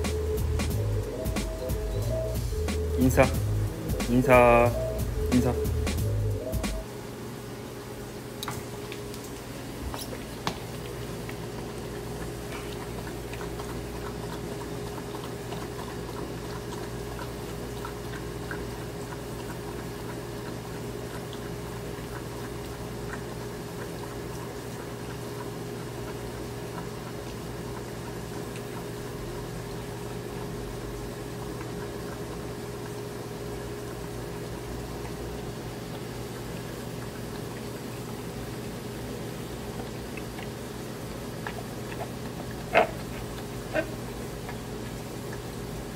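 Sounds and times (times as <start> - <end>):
low hum: 0.0 - 7.0
dog lapping and slurping milk: 8.6 - 45.9.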